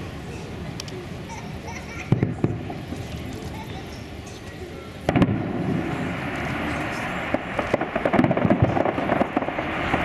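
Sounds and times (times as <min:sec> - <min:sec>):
firework crackling pops: 0:05.0 - 0:10.0
firework shell bang: 0:05.1 - 0:06.2, 0:06.9 - 0:10.0.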